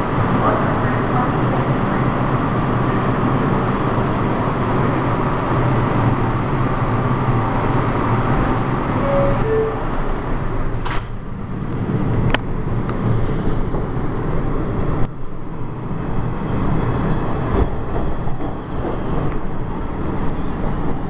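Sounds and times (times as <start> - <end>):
subway train wheels rumbling: 0.0 - 21.0
high squeaks: 9.0 - 10.1.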